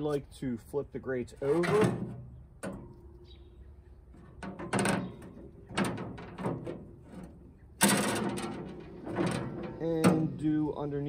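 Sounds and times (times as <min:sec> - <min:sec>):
metal grate clanking: 0:01.5 - 0:03.2, 0:04.2 - 0:10.7
scraper scraping metal grate: 0:04.2 - 0:10.6.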